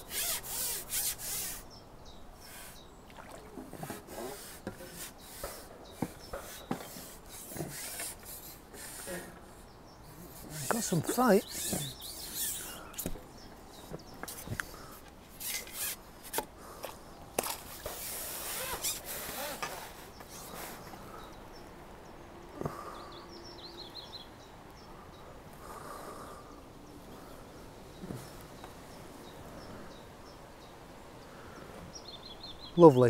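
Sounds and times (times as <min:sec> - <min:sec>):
bird chirps: 0:09.6 - 0:15.9, 0:20.1 - 0:25.3.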